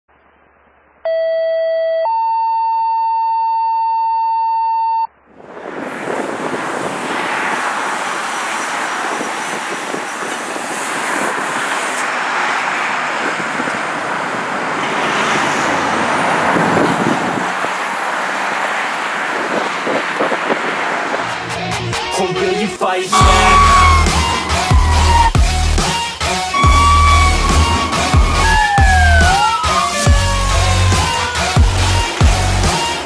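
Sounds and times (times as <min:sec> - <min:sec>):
fire engine driving by: 0:05.3 - 0:22.2, 0:23.1 - 0:33.0
two electronic tones: 0:23.2 - 0:25.6, 0:26.6 - 0:29.4.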